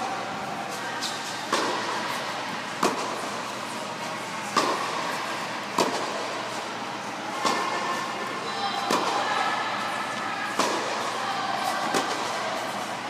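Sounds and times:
steady background noise: 0:00.0 - 0:13.0
racket hitting tennis ball: 0:01.0 - 0:06.7, 0:07.3 - 0:08.1, 0:08.7 - 0:09.4, 0:10.5 - 0:12.8.

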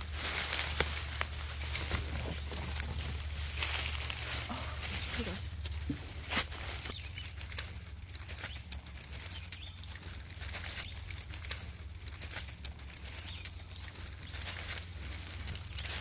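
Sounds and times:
rustling dry leaf litter: 0:00.0 - 0:16.0
steady low hum: 0:00.0 - 0:16.0.

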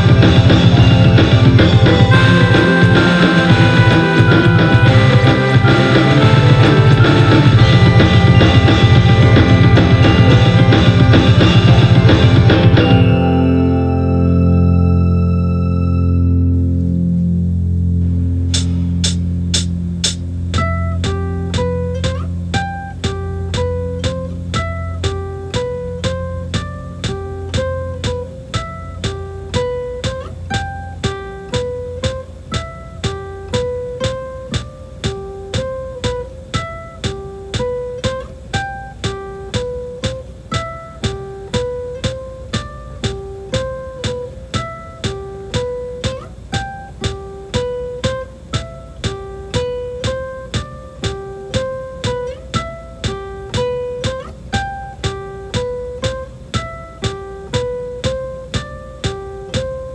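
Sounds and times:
low sustained note: 0:00.0 - 0:21.0
guitar picking single notes: 0:00.0 - 0:59.9.

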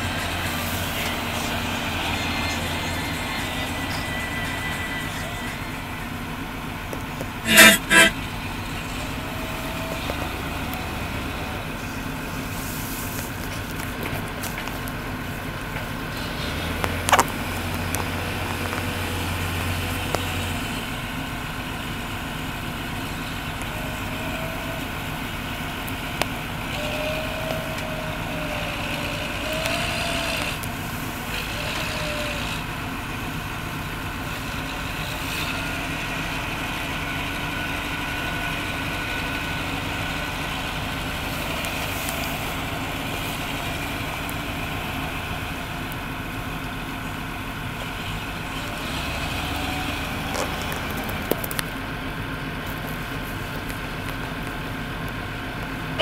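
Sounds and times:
tractor diesel engine running: 0:00.0 - 0:56.0
sharp metal clank: 0:07.4 - 0:08.2.

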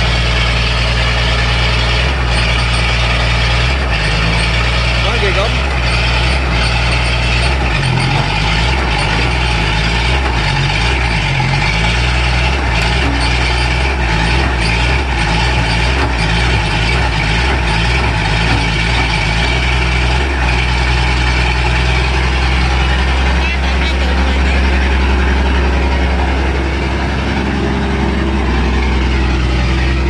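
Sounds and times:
excavator engine running at high revs: 0:00.0 - 0:30.0.

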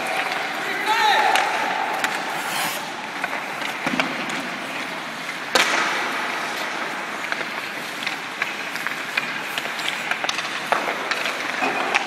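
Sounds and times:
skates scraping on ice: 0:00.0 - 0:12.0
sharp echoing crack: 0:05.5 - 0:06.9
stick clicking on puck: 0:05.5 - 0:12.0.

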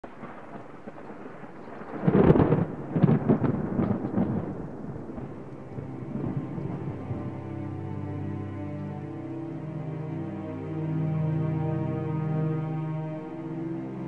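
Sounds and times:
thunder clap: 0:00.0 - 0:07.7
rolling thunder rumbles: 0:00.0 - 0:08.1.

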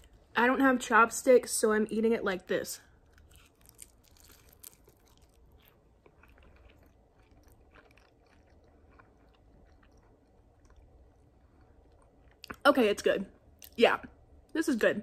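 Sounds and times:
faint chewing: 0:02.9 - 0:12.6.

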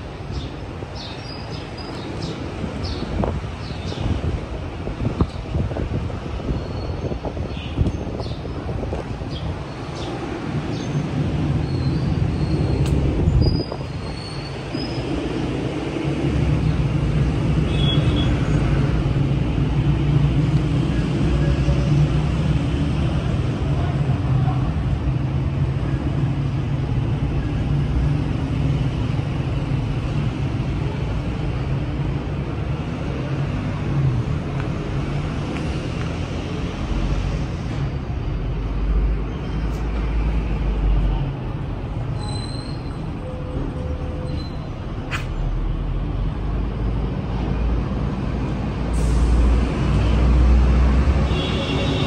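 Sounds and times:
road traffic rumble: 0:00.0 - 0:52.0
heavy engine drone: 0:45.7 - 0:52.0.

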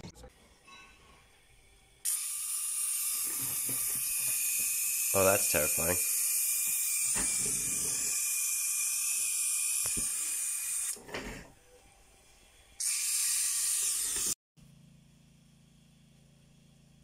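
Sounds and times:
steam hissing: 0:02.0 - 0:11.0.

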